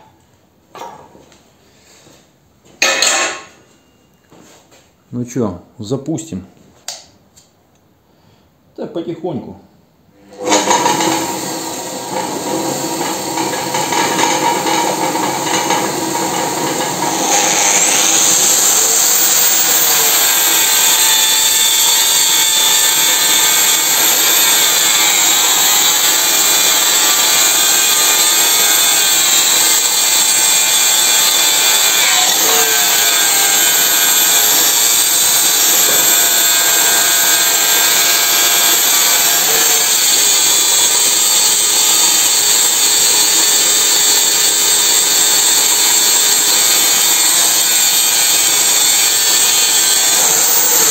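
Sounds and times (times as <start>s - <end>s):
angle grinder grinding metal pipe: 10.2s - 50.9s
electric motor spindle turning: 10.2s - 50.9s.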